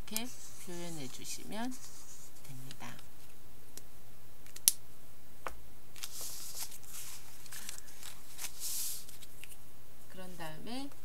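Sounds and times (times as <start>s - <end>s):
paper rustling on table: 0.1s - 3.3s, 6.0s - 9.6s.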